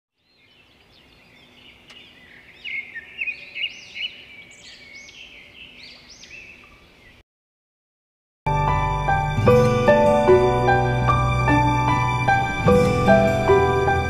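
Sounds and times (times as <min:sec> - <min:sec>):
birds chirping: 0:00.1 - 0:07.2.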